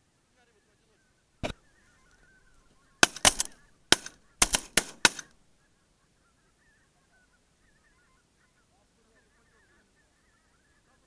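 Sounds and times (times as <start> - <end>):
shotgun shots: 3.0 - 5.3
geese honking: 5.6 - 11.0.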